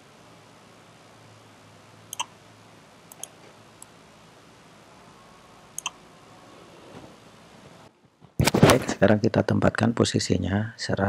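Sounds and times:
computer mouse clicks: 2.1s - 2.3s, 3.1s - 3.9s, 5.8s - 6.0s.

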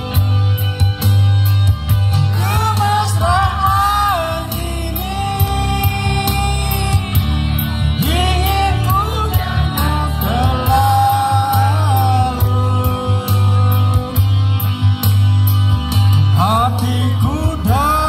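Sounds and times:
heavy bass line: 0.0s - 18.0s
steady drum beat: 0.0s - 18.0s
singing voice: 2.3s - 14.9s, 16.3s - 18.0s.

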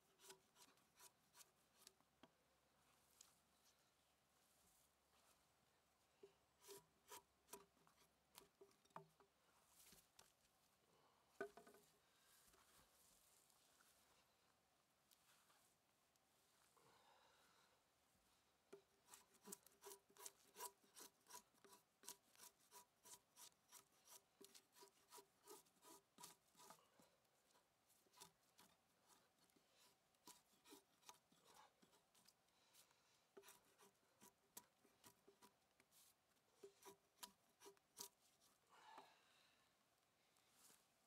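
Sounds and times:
drawknife scraping bark: 6.6s - 7.7s, 19.0s - 26.8s, 28.1s - 29.2s, 29.8s - 32.3s, 33.4s - 35.6s, 36.6s - 38.2s.

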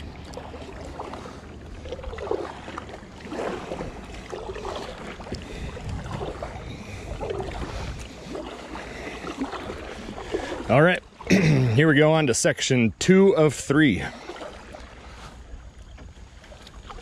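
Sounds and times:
paddle strokes swishing in water: 0.0s - 17.0s
wind rumble on microphone: 3.3s - 8.6s.

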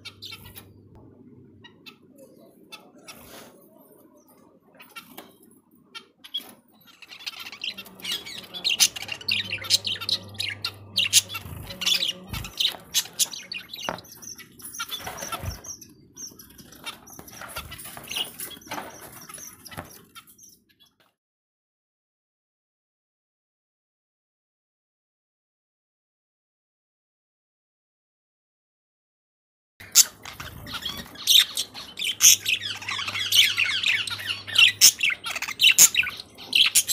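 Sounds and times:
budgerigar chicks chirping: 0.0s - 0.9s, 1.5s - 20.9s, 29.8s - 36.9s.

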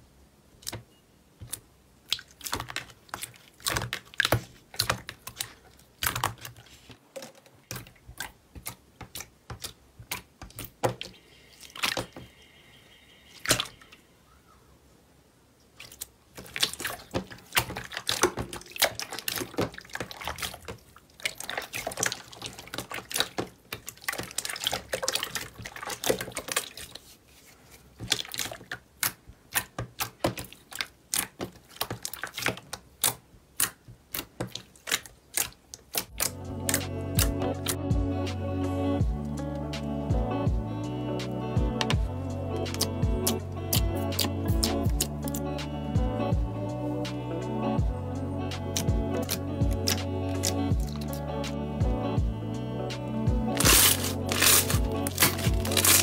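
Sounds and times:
slime squeezed by hand: 53.6s - 56.0s.

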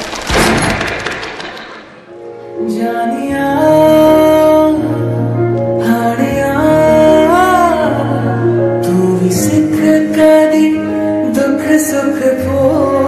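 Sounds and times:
percussion strikes: 0.0s - 2.2s.

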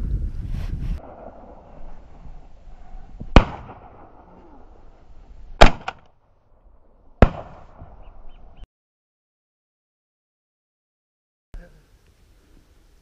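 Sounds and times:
shotgun shots: 3.3s - 4.3s, 5.6s - 6.1s, 7.2s - 8.0s.

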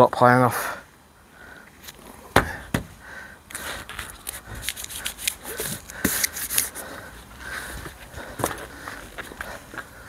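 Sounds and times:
sharp knocks on windscreen: 2.3s - 3.0s
gloved hands clicking and rustling: 3.5s - 6.9s.

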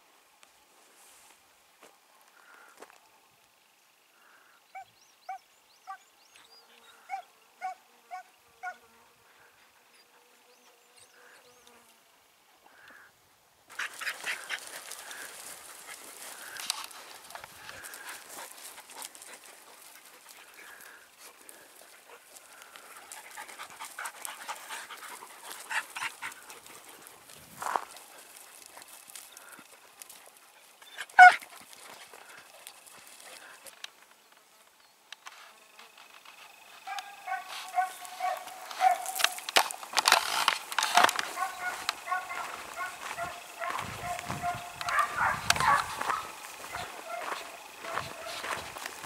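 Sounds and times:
insect hum: 0.0s - 49.0s
hound yelping: 7.1s - 8.8s, 30.8s - 31.5s, 36.9s - 39.4s, 40.8s - 48.8s
dogs panting and sniffing: 13.7s - 34.0s, 36.3s - 49.0s
scuffs on stones: 13.7s - 34.0s, 36.0s - 49.0s.

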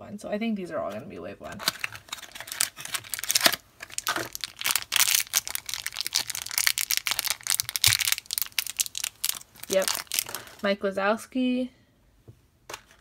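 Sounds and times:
plastic wrapper crinkling and tearing: 1.6s - 10.6s.

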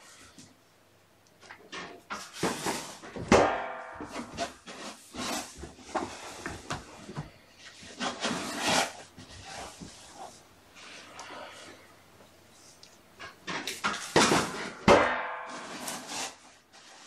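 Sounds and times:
toys knocking and rustling: 1.4s - 8.4s, 12.8s - 15.9s.

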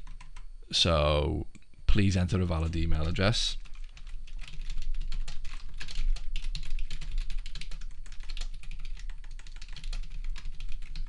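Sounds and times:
typing on computer keyboard: 0.0s - 0.5s, 3.0s - 11.0s.

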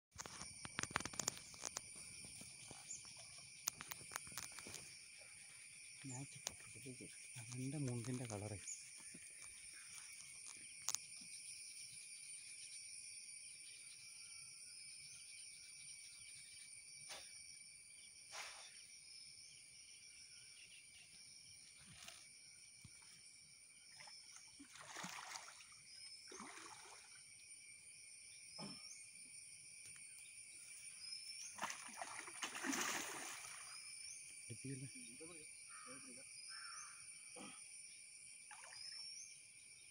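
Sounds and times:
high insect drone: 0.2s - 39.9s
fish splashing in water: 24.0s - 27.2s, 31.5s - 33.8s.

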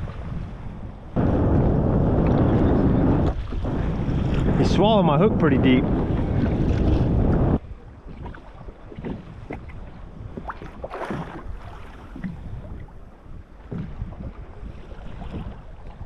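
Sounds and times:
waves slapping kayak hull: 0.0s - 16.0s
wind rushing over microphone: 0.0s - 16.0s
water splash: 10.4s - 12.7s.

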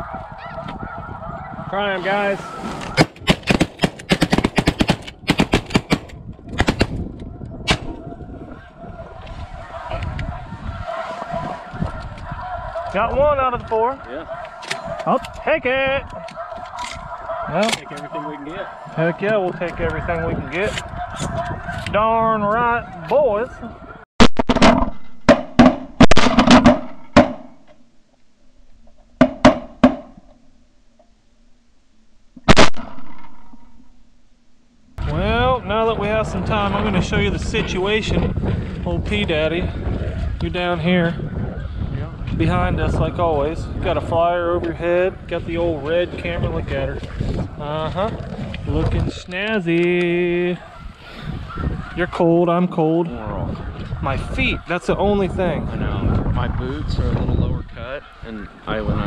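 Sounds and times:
shotgun fire: 24.2s - 27.5s, 32.5s - 33.7s.

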